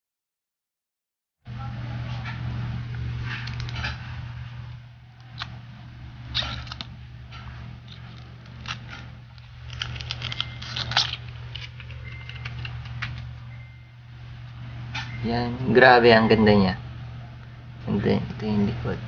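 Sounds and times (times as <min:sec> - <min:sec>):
steady low hum: 0:01.5 - 0:19.0
plastic film peeling crackle: 0:03.3 - 0:04.0, 0:04.7 - 0:05.6, 0:06.3 - 0:07.0, 0:07.8 - 0:13.4.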